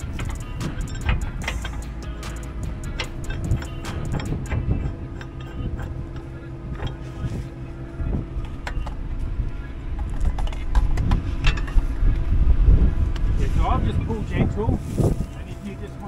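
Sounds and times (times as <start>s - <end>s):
metallic clicks and knocks: 0.0s - 7.2s
diesel truck engine idling: 0.0s - 16.0s
wind buffeting microphone: 0.0s - 16.0s.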